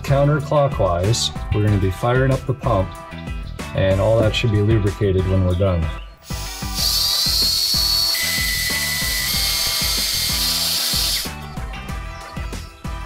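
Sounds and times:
background music: 0:00.0 - 0:13.0
cordless drill whining: 0:06.2 - 0:11.5.

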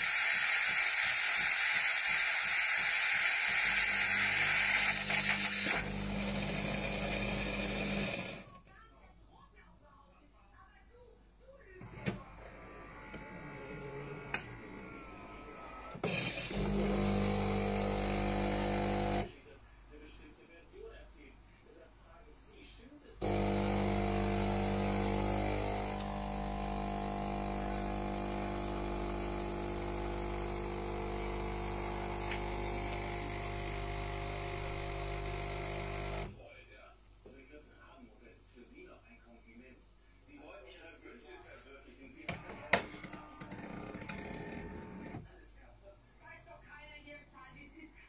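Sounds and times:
coffee machine pump buzzing hum: 0:00.0 - 0:08.5, 0:11.9 - 0:19.4, 0:23.2 - 0:36.3, 0:42.3 - 0:45.2.

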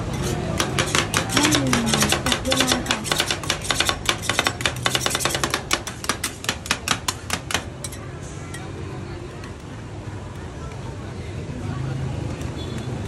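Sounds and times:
metal spatulas chopping on steel: 0:00.0 - 0:08.7.

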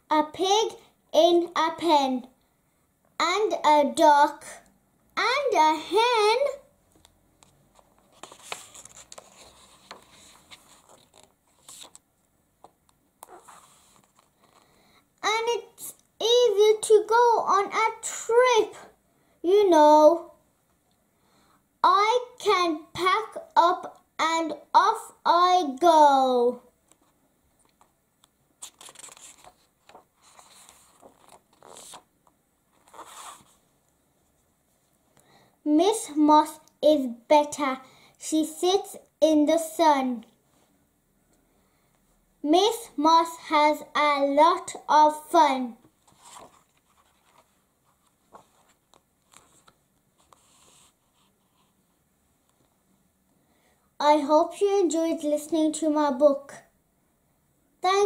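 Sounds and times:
book page turning: 0:07.4 - 0:12.0, 0:12.6 - 0:14.8, 0:28.6 - 0:33.6, 0:45.9 - 0:51.8.

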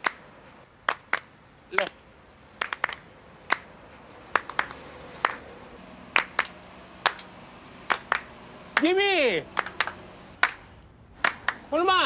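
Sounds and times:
people clapping hands: 0:00.0 - 0:02.0, 0:02.6 - 0:03.7, 0:04.3 - 0:05.5, 0:06.1 - 0:11.7.

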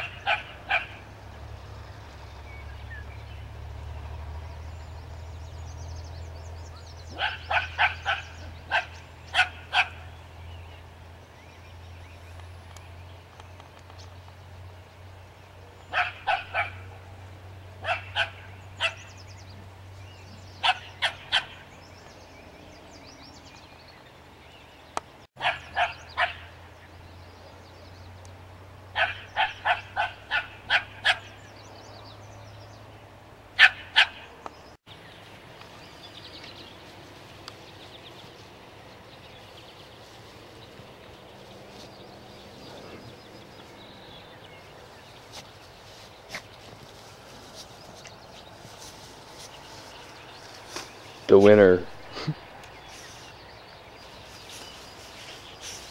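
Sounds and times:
small dog barking: 0:00.0 - 0:01.0, 0:07.1 - 0:10.1, 0:15.9 - 0:16.9, 0:17.8 - 0:19.0, 0:20.6 - 0:21.6, 0:25.4 - 0:26.5, 0:29.0 - 0:31.3, 0:33.6 - 0:34.3.

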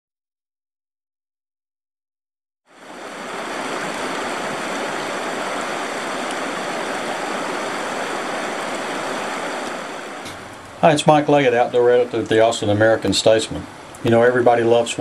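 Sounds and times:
river rushing over riffle: 0:02.7 - 0:15.0.

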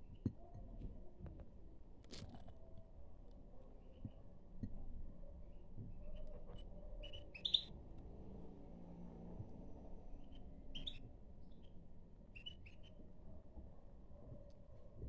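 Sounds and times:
bird chirping calls: 0:05.9 - 0:07.8, 0:10.2 - 0:13.0.

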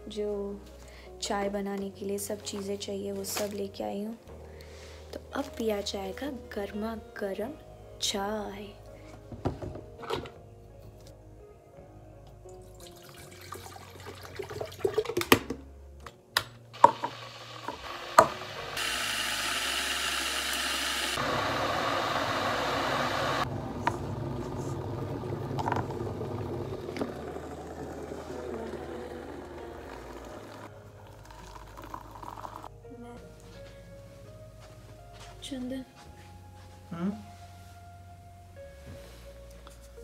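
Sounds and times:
kettle and cups clicking: 0:12.9 - 0:15.6, 0:16.8 - 0:18.4
tap water running into kettle: 0:16.8 - 0:21.2.

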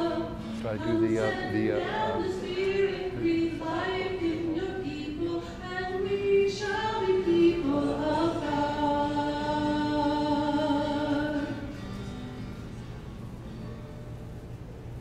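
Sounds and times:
hymn singing: 0:00.0 - 0:11.7.

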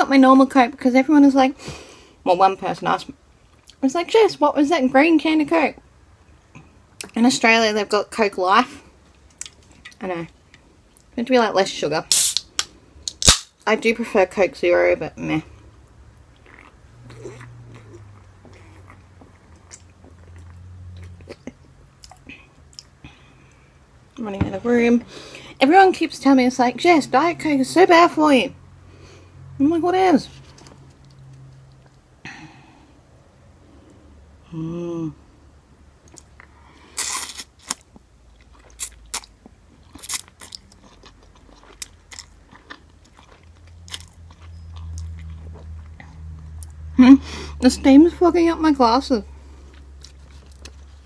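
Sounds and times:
wet chewing and smacking: 0:16.2 - 0:23.0, 0:36.0 - 0:46.9, 0:49.6 - 0:51.0.

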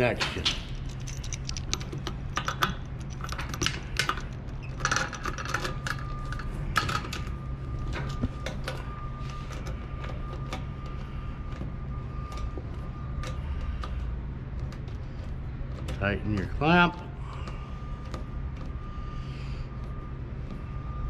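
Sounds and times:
steady low hum: 0:00.0 - 0:21.0
metal clicks and clinks: 0:00.2 - 0:07.2.

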